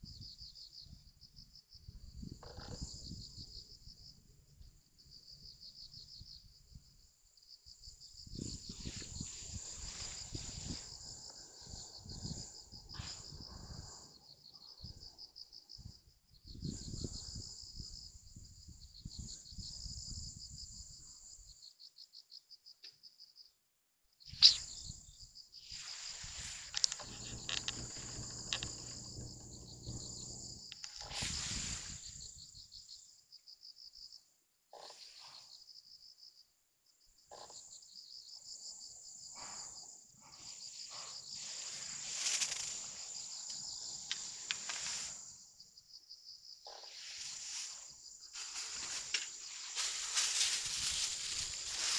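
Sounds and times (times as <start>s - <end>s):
crickets and insects chirping: 0.0s - 23.6s, 24.2s - 51.9s
sharp click: 24.4s - 24.6s.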